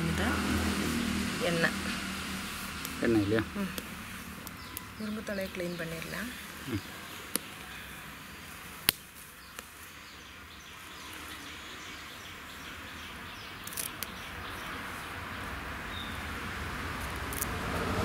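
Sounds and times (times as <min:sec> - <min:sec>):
leaves rustling and snapping: 0:07.2 - 0:07.7, 0:08.7 - 0:09.9, 0:13.6 - 0:14.2, 0:17.0 - 0:17.6.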